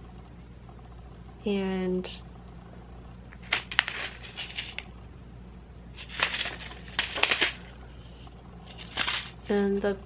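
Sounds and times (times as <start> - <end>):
plastic bag rustling: 3.4 - 4.9, 5.9 - 9.5.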